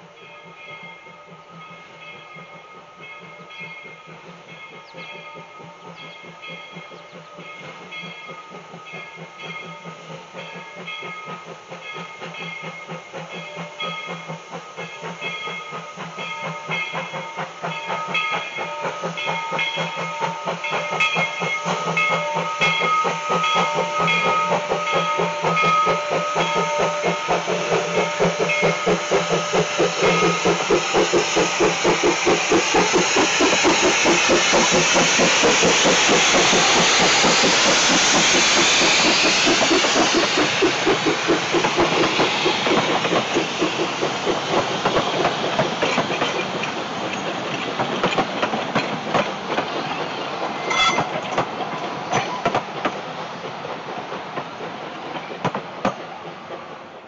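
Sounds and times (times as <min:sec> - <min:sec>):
steam hissing: 0:00.0 - 0:57.0
steam locomotive chuffing: 0:00.0 - 0:57.0
train cars clickety-clack: 0:00.0 - 0:57.0.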